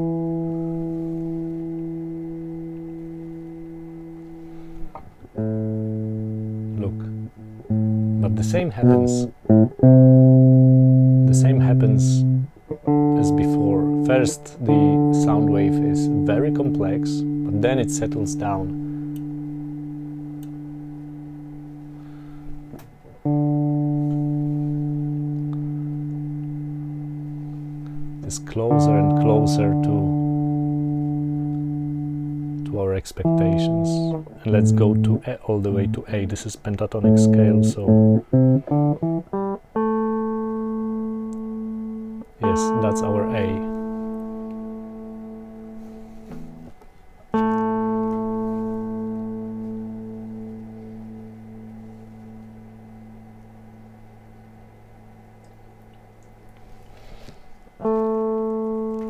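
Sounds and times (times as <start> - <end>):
clean electric guitar notes: 0.0 - 59.0
hand scraping guitar strings: 45.8 - 46.7.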